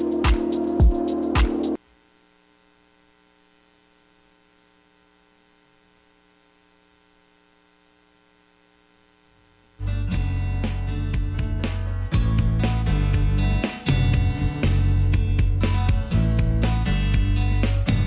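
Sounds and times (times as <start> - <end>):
music with steady beat: 0.0 - 1.8, 9.8 - 18.0
faint steady hum: 0.0 - 18.0.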